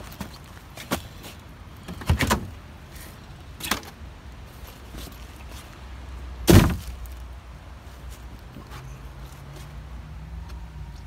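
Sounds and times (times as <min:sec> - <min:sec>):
boots thumping into plastic bin: 0:06.5 - 0:06.9.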